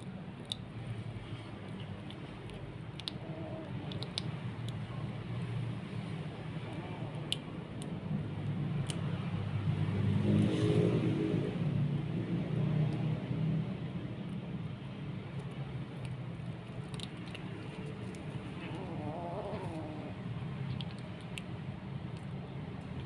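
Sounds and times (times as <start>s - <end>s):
kitten crunching fish head: 0.0s - 9.4s, 15.5s - 21.6s.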